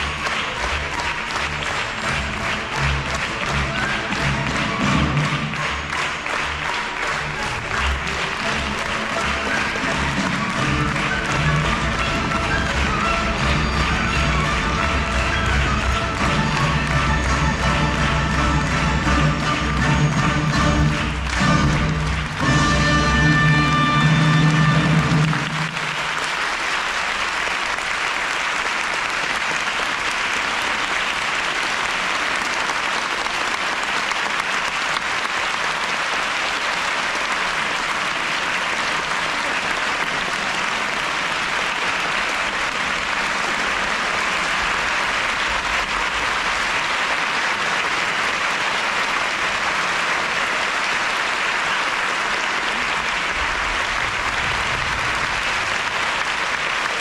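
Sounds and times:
orchestral music: 0.0s - 26.5s
audience applauding: 0.0s - 57.0s.

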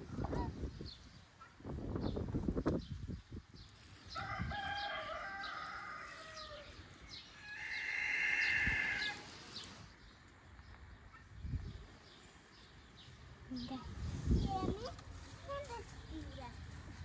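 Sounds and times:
rooster crowing: 4.2s - 6.8s, 7.4s - 9.3s.

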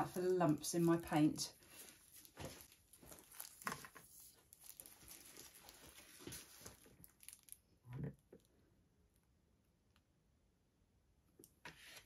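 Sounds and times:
plastic gloves rustling: 0.0s - 7.8s.

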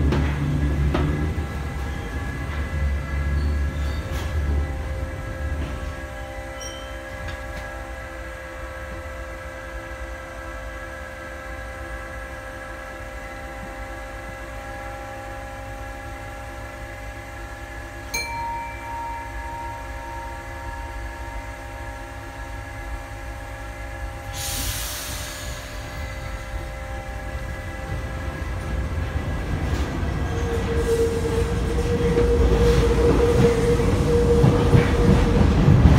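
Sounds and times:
train low rumble: 0.0s - 35.9s
brief tone: 6.4s - 7.3s, 18.1s - 23.2s
steady whining tones: 14.5s - 24.4s
air hiss burst: 24.3s - 26.2s.

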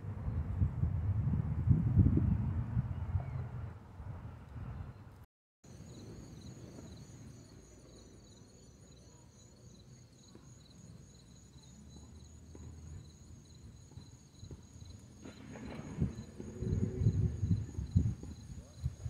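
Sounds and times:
insects trilling: 5.7s - 12.3s.

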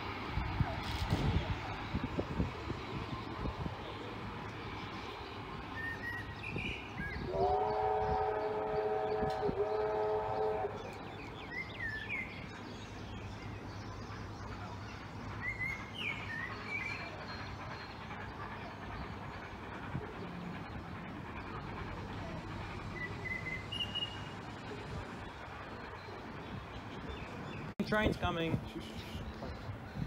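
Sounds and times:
birds chirping: 3.8s - 30.0s
distant train whistle chord: 7.3s - 11.0s.

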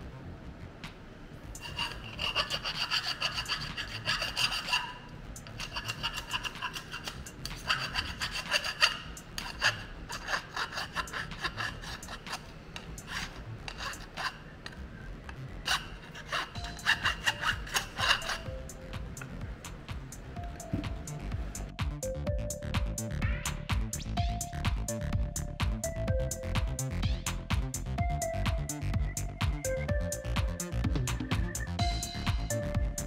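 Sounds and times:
file scraping metal edges: 1.6s - 14.8s, 15.6s - 18.6s.

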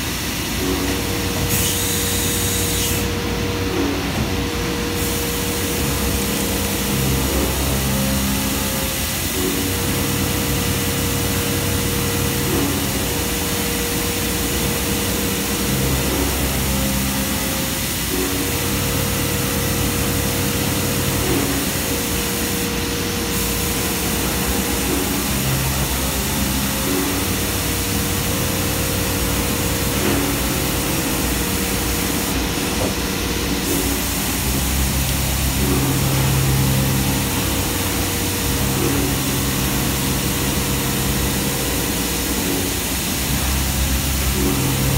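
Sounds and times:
machine tone: 0.0s - 4.7s, 5.6s - 44.9s
machining center drilling: 0.0s - 44.9s
coolant spray hiss: 1.5s - 3.1s.

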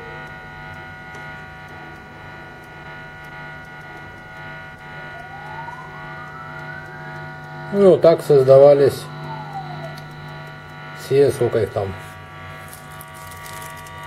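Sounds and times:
electronic noise drone: 0.0s - 14.0s
rising whine: 0.0s - 14.0s.

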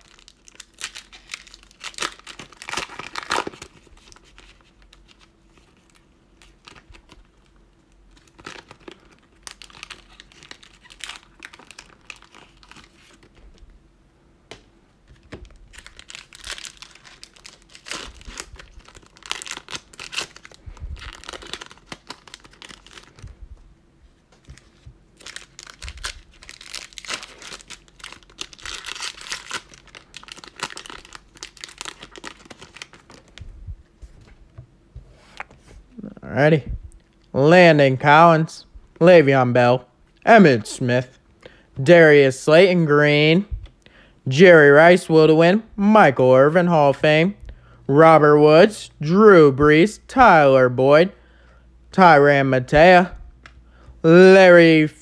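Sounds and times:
plastic wrappers crinkling and tearing: 0.0s - 13.7s, 15.1s - 23.3s, 24.4s - 33.4s.

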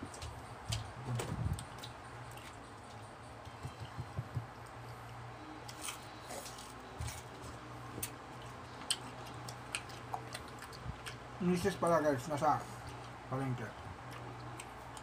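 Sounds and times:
electric fan hum: 0.0s - 15.0s
mouths chewing: 3.7s - 11.9s, 12.6s - 15.0s.

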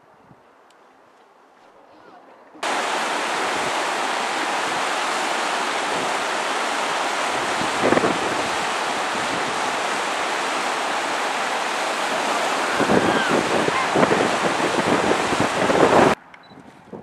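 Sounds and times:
river rapids rushing: 2.6s - 16.2s
water cascading down bank: 2.6s - 16.2s
wind on microphone: 2.6s - 17.0s.

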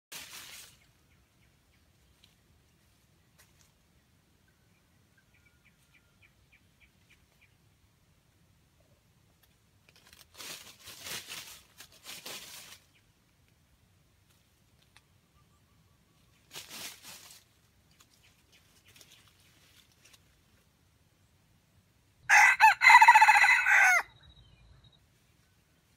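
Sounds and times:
rustling in dry leaf litter: 0.1s - 1.1s, 9.8s - 13.2s, 16.2s - 20.8s
faint scattered crackles: 9.3s - 15.2s, 16.2s - 20.8s.

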